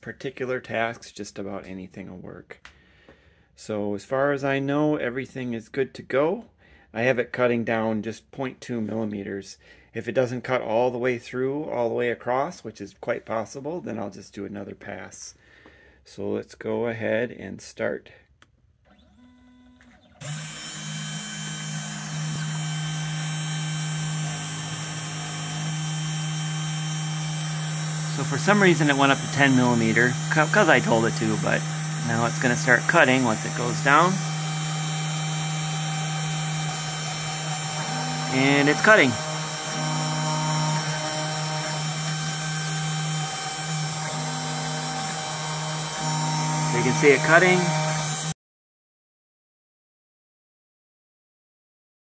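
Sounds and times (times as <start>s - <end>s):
spindle motor running: 19.8s - 48.4s.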